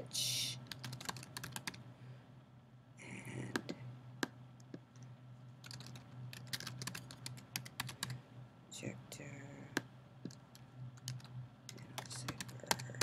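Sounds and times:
low steady hum: 0.0s - 13.0s
typing on computer keyboard: 0.7s - 1.8s, 5.6s - 8.1s, 11.0s - 13.0s.

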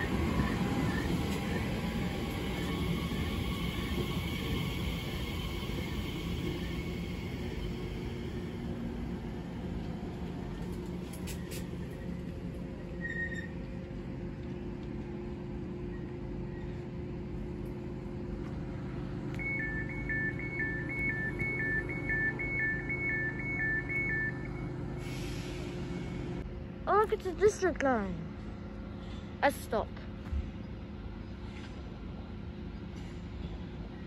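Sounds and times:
train electrical hum: 0.0s - 34.0s
two-tone door warning beeping: 19.3s - 24.8s.

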